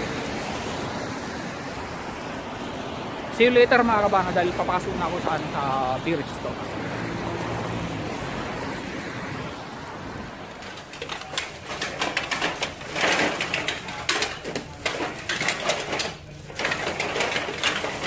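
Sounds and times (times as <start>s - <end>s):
plastic bags of cans rustling: 10.6s - 18.0s.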